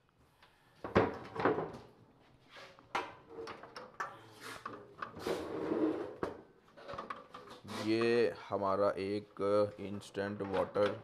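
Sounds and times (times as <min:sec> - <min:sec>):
scraping and rustling: 0:02.3 - 0:08.2.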